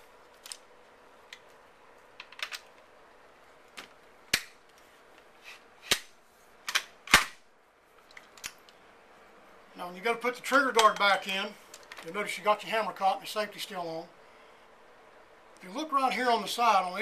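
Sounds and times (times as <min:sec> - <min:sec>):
rifle parts knocking and clicking: 0:01.3 - 0:02.9, 0:05.9 - 0:07.4.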